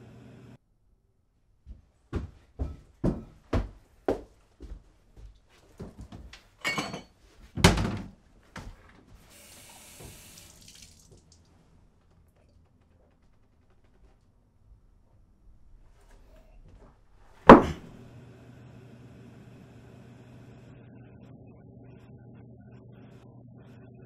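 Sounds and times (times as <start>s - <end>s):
footsteps on kitchen floor: 1.6s - 6.6s, 8.4s - 9.3s
drinking glass knocks and clinks: 6.6s - 7.2s.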